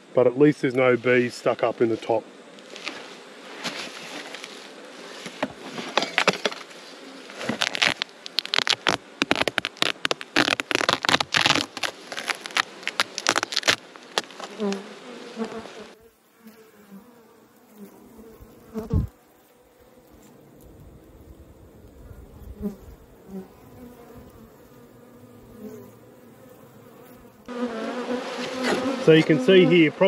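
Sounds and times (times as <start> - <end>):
bees buzzing: 1.1 - 30.0
foil crackling and crinkling: 2.7 - 14.8.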